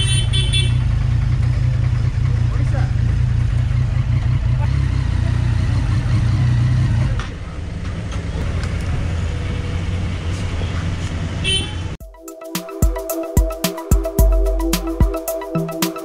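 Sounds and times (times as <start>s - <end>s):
motorcycle engine idling: 0.0s - 5.5s.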